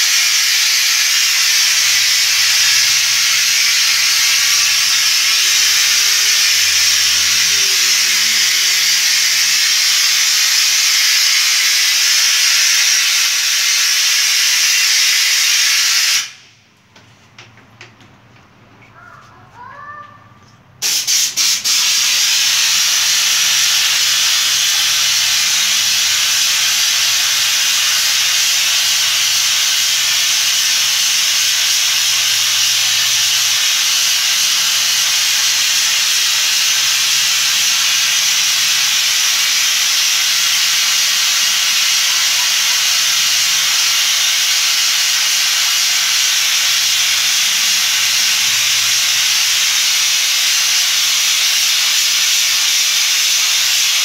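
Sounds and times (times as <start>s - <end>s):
air spray gun hissing: 0.0s - 16.6s, 20.8s - 54.0s.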